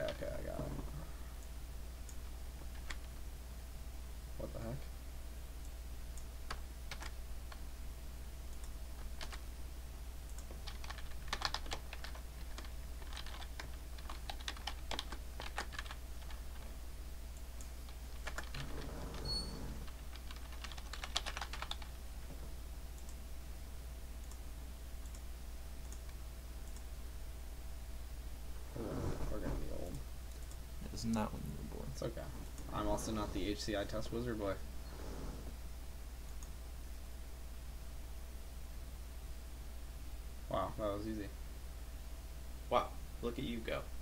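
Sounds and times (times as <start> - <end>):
faint steady hum: 0.0 - 44.0
typing on computer keyboard: 6.5 - 7.6, 9.2 - 9.4, 10.3 - 16.5, 18.2 - 18.8, 19.9 - 21.9.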